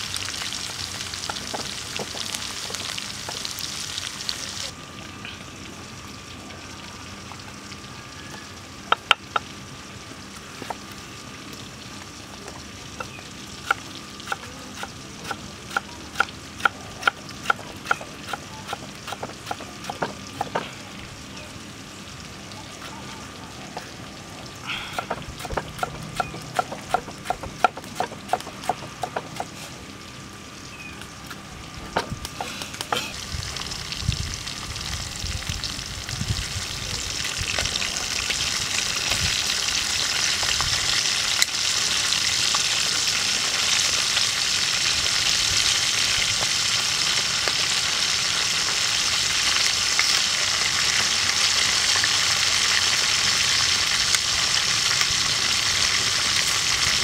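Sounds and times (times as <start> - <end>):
meat sizzling in hot oil: 0.0 - 4.9, 33.1 - 57.0
knife chopping on wooden board: 25.0 - 29.5.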